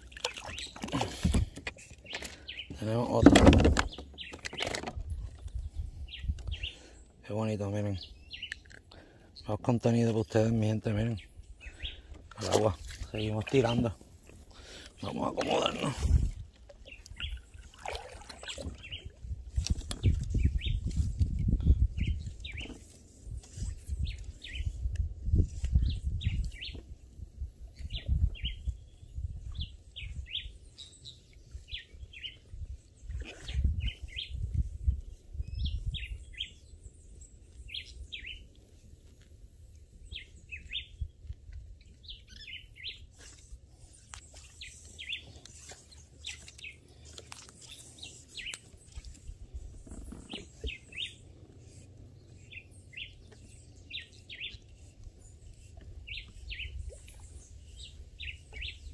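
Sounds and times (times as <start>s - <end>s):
small birds chirping: 0.0s - 58.9s
low rumbles on microphone: 18.8s - 22.6s.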